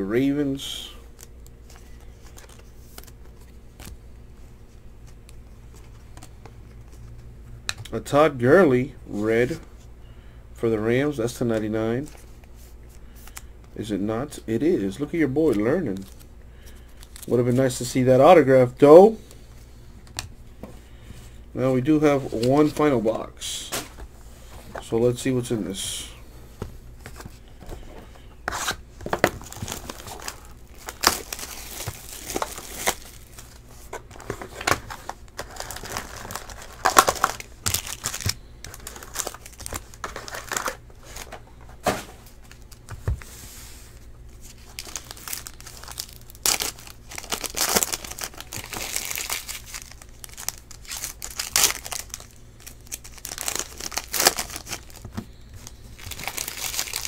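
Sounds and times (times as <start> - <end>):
foil packs crinkling and tearing: 28.5 - 41.5, 44.4 - 57.0.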